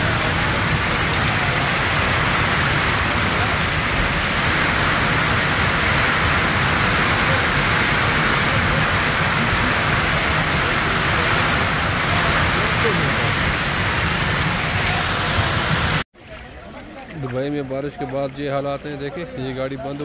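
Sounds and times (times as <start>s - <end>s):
heavy rain on paved ground: 0.0s - 17.3s.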